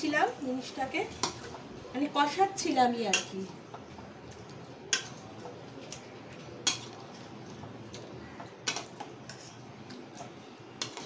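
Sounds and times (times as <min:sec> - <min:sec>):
spoon scraping a steel pan: 0:09.3 - 0:09.6.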